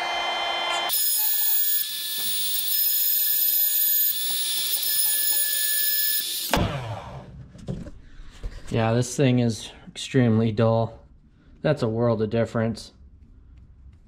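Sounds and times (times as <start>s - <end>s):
sharpener motor whining: 0.0s - 7.2s.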